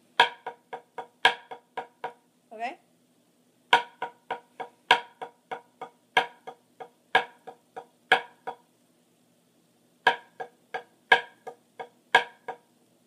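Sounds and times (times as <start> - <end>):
drumsticks on a practice pad: 0.2 - 2.3, 3.7 - 8.7, 10.0 - 12.7.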